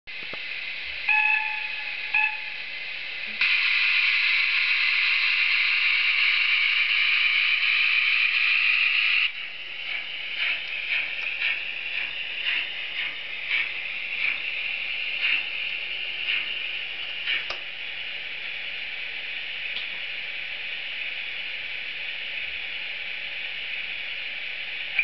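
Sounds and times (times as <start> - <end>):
model train whistle toots: 1.1 - 2.6
loud steam hiss: 1.7 - 17.6
steam exhaust chuffs: 3.3 - 18.4.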